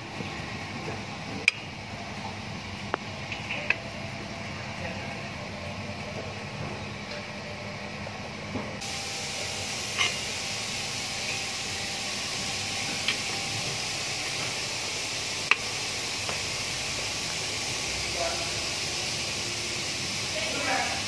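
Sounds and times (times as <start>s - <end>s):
steady hiss: 8.8s - 21.0s.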